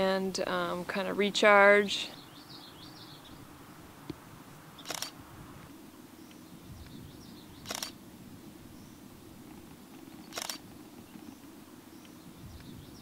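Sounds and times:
low outdoor background: 0.0 - 13.0
faint bird chirps: 4.8 - 5.1, 6.2 - 8.0, 8.6 - 13.0
camera shutter clicks: 4.8 - 5.2, 7.6 - 8.0, 10.2 - 10.6.

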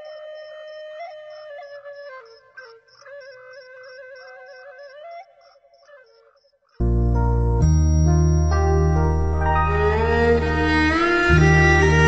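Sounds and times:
gliding melody: 6.8 - 12.0
held bass notes: 6.8 - 12.0.

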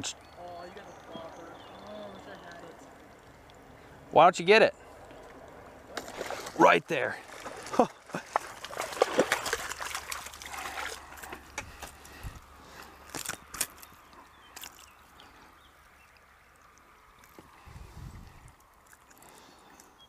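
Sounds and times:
water sloshing and trickling: 0.0 - 20.0
fish splashing at surface: 5.1 - 12.2.

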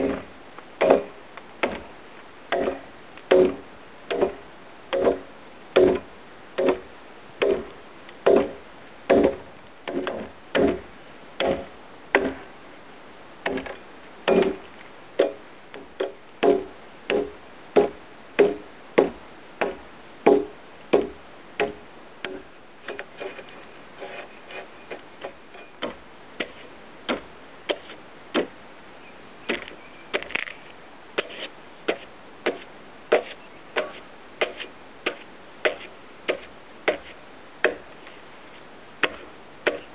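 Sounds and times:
axe chopping wood: 0.0 - 1.9, 2.5 - 4.4, 5.0 - 7.7, 8.3 - 12.5, 13.4 - 14.6, 15.2 - 15.4, 16.0 - 23.0, 25.2 - 28.5, 31.2 - 37.9, 39.0 - 39.9.

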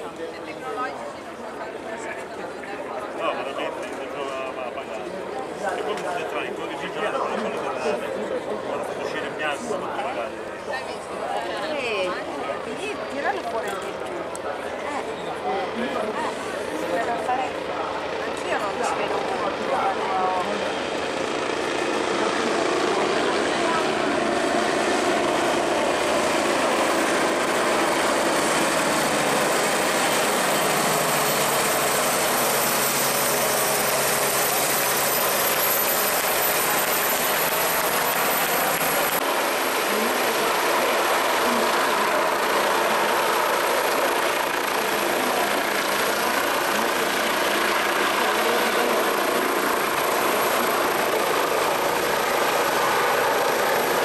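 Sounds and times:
helicopter rotor and turbine noise: 0.0 - 54.0.

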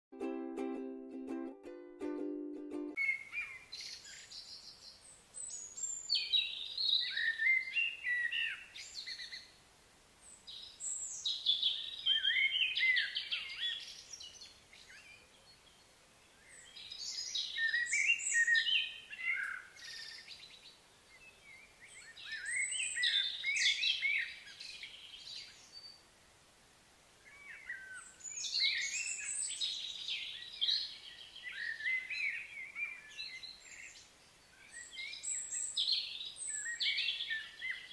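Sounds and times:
songbird warbling: 16.4 - 25.9.

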